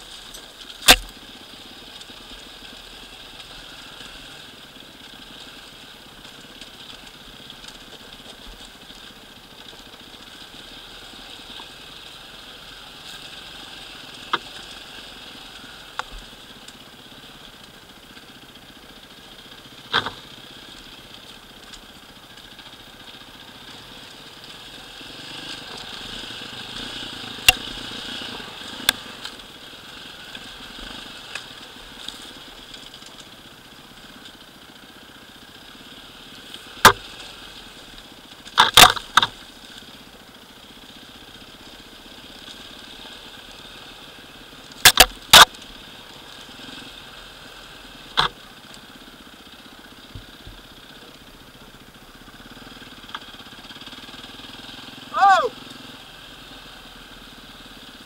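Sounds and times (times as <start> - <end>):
bike knocking over stones: 0.0 - 1.2, 19.8 - 20.3, 38.4 - 39.5, 44.7 - 45.6, 48.1 - 48.4
dirt bike engine at low revs: 0.0 - 58.0.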